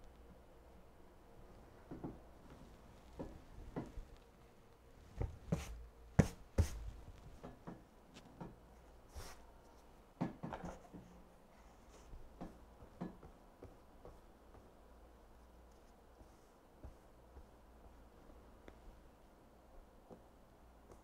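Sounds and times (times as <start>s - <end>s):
handling knocks and taps: 3.1s - 4.1s, 12.2s - 14.8s.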